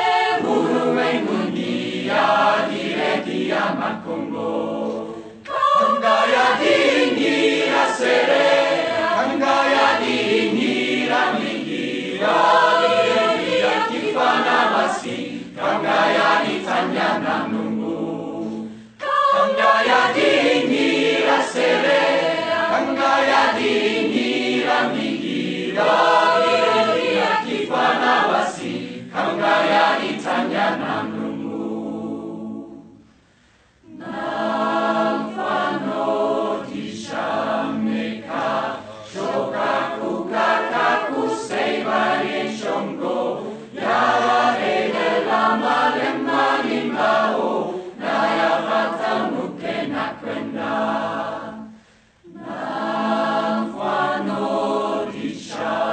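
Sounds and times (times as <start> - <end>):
choir singing: 0.0 - 33.0, 33.8 - 55.9.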